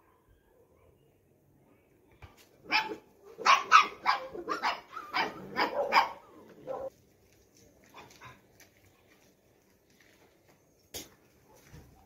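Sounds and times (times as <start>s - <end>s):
dog barking: 2.7s - 6.9s.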